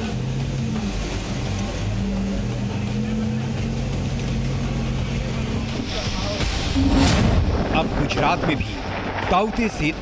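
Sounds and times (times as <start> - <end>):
steady low drone: 0.0 - 10.0
heavy surf breaking: 5.9 - 10.0.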